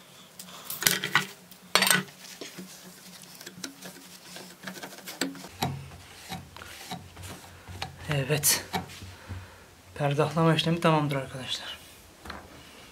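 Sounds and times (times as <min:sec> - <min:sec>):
cloth rubbing on knife blade: 0:02.2 - 0:09.1.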